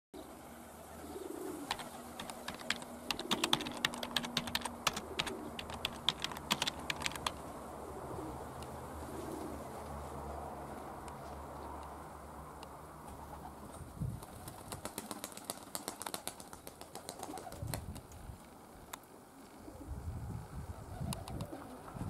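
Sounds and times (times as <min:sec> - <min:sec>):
pigeons cooing: 0:00.2 - 0:09.9, 0:16.9 - 0:17.8, 0:20.7 - 0:22.0
sharp clicks: 0:01.7 - 0:07.4.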